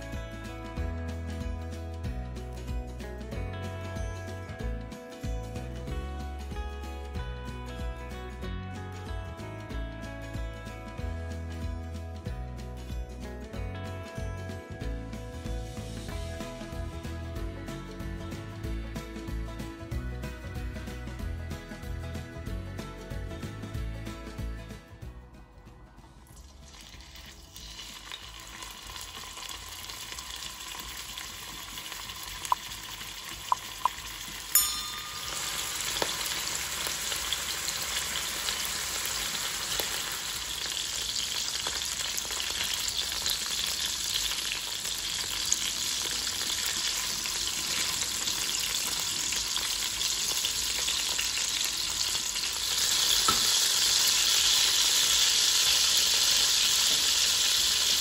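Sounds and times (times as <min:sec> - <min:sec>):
meat sizzling in hot oil: 0:26.4 - 0:58.0.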